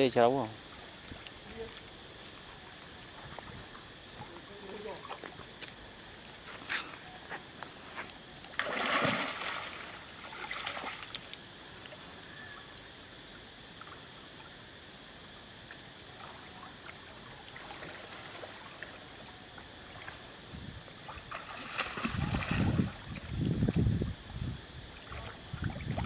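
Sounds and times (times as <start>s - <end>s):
water lapping and trickling: 0.0s - 26.0s
water splashing: 8.4s - 12.1s, 16.1s - 20.3s, 21.0s - 23.6s.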